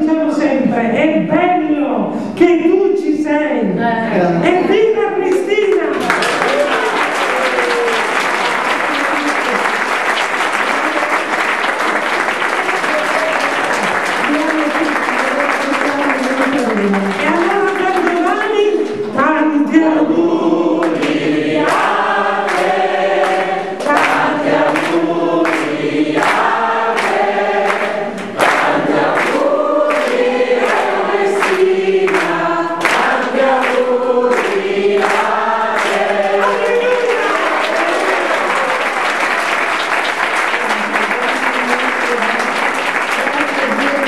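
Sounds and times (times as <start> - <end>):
applause: 5.3 - 19.0, 20.9 - 44.0
clapping along to beat: 5.3 - 19.0, 20.8 - 44.0
crowd singing: 19.0 - 38.4.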